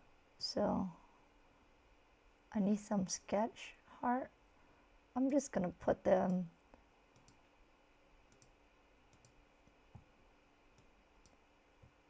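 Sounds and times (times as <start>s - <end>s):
faint computer mouse clicks: 7.1s - 7.4s, 8.3s - 10.1s, 10.7s - 11.4s.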